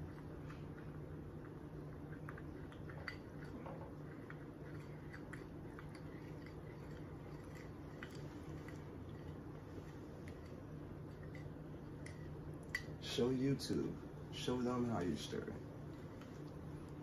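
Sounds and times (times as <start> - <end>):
low steady hum: 0.0 - 17.0
plastic spoon stirring in bowl: 1.4 - 12.9
soft clicks and squishes: 15.9 - 17.0.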